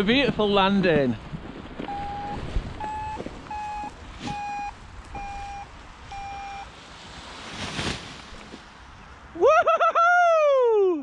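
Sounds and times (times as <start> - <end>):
short electronic beeps: 1.9 - 6.7.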